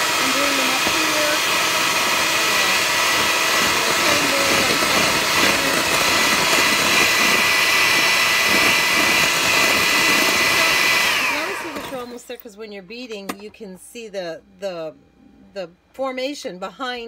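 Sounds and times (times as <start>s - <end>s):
electric hand mixer whipping: 0.0s - 12.2s.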